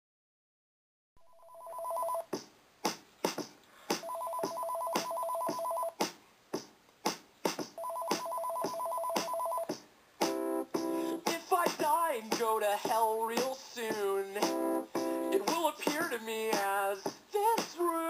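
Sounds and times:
telephone ringing: 1.2 - 2.3, 4.0 - 6.0, 7.8 - 9.7.

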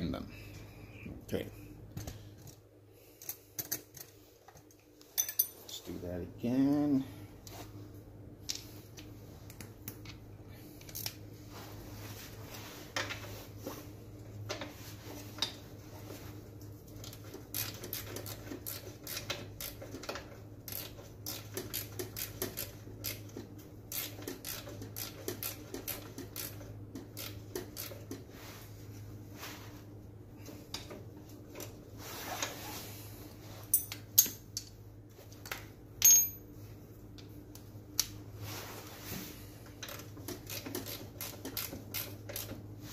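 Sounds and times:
steady low hum: 0.0 - 42.9
wrench clicking on bolts: 20.7 - 23.3, 39.8 - 42.5.

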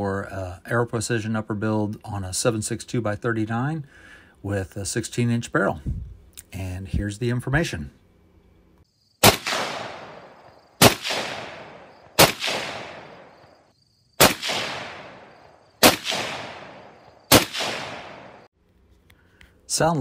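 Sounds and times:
gunshot echo: 9.2 - 13.6, 14.2 - 18.5
rifle shots: 9.2 - 13.6, 14.2 - 18.5.

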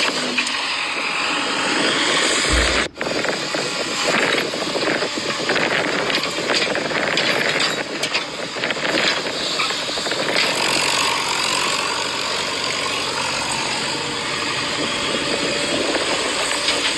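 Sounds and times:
toy excavator running: 6.0 - 16.9.

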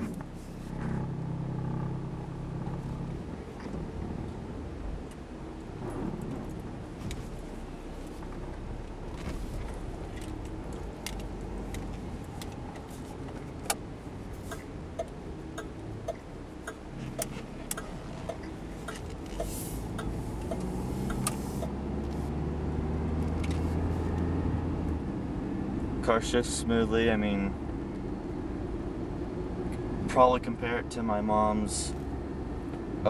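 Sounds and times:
car engine accelerating: 0.0 - 33.0
light regular ticking: 9.8 - 22.2.

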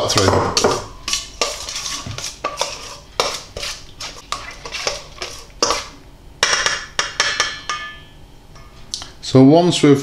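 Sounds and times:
spoon stirring paste in bowl: 0.0 - 8.0
spoon clinking on bowl: 6.4 - 8.8.

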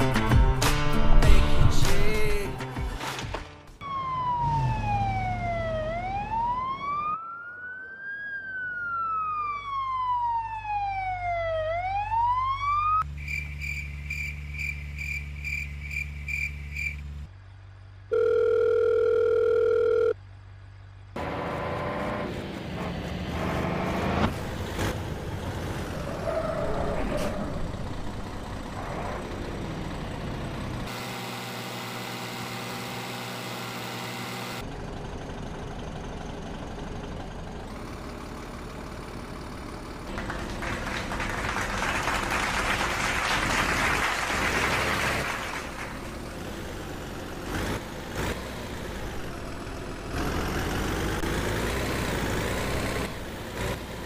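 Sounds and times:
siren-like electronic wail: 3.8 - 13.1
steady dial tone: 18.1 - 20.2.

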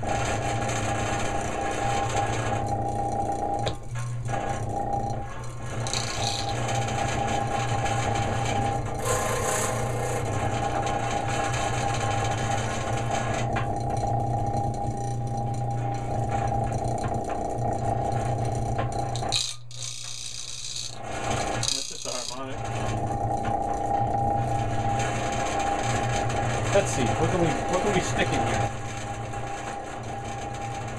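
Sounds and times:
electric motor humming and rattling: 0.0 - 30.9.

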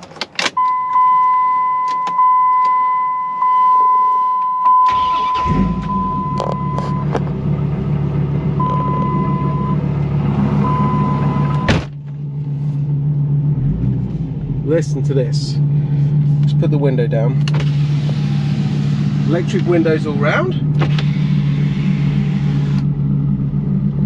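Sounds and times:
car engine starting and idling: 0.0 - 24.0
car door shutting: 11.4 - 12.2, 17.4 - 19.8, 20.7 - 22.9.

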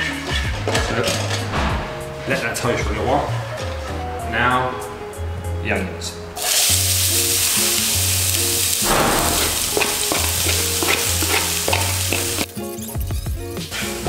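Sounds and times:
onion sizzling in oil: 6.4 - 12.9
spatula scraping pan: 9.2 - 12.6.

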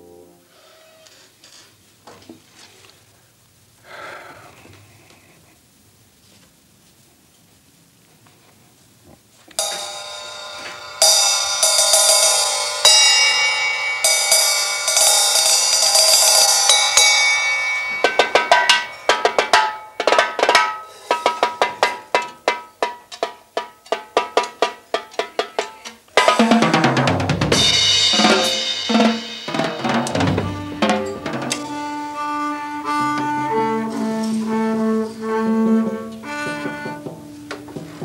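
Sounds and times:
ringing cymbal strikes: 9.6 - 22.0, 27.5 - 34.7
quick even drum strokes: 9.6 - 22.8, 23.9 - 32.2.

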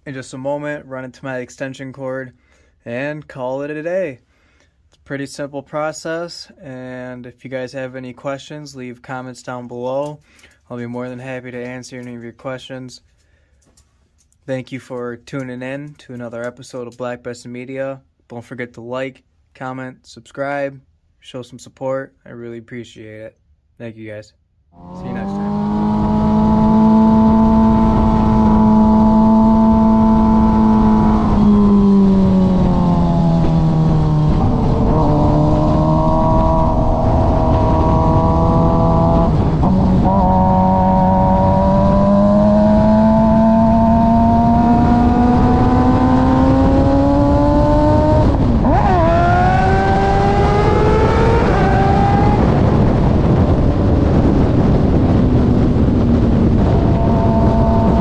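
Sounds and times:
motorcycle engine revving: 24.8 - 58.0
wind rush on microphone: 25.0 - 58.0.

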